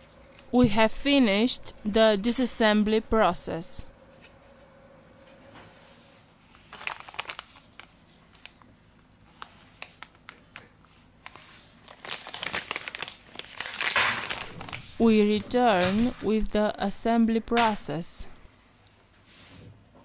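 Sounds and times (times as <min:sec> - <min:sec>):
plastic bag crinkling: 0:06.6 - 0:16.2.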